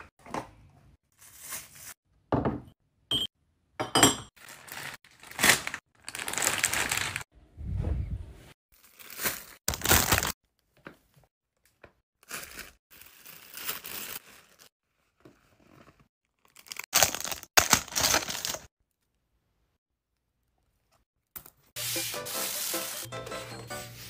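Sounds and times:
plastic packaging crinkling: 4.4s - 7.2s, 8.8s - 10.4s, 16.4s - 18.7s.

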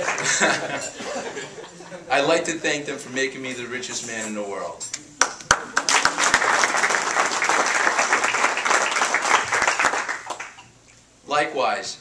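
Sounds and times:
audience applauding: 0.0s - 0.6s, 5.2s - 10.6s.

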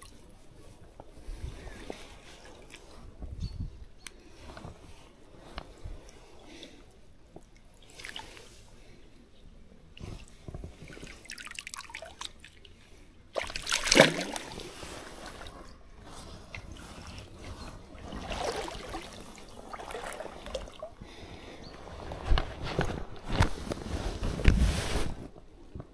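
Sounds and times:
water trickling and sloshing: 0.0s - 3.8s, 4.9s - 8.9s, 9.9s - 23.0s
water splash: 13.4s - 15.5s, 18.1s - 20.8s.

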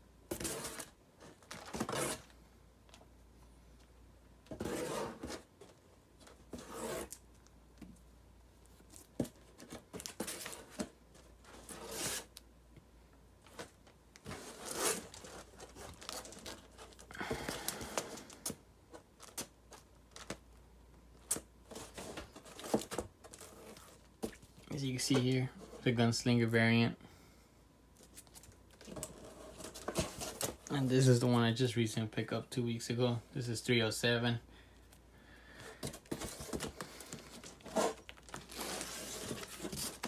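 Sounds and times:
plastic bags rustling and crinkling: 13.5s - 18.5s, 35.8s - 40.0s.

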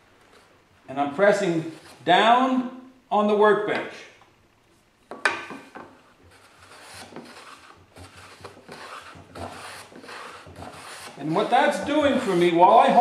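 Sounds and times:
hand plane rasping on wood: 6.3s - 13.0s.

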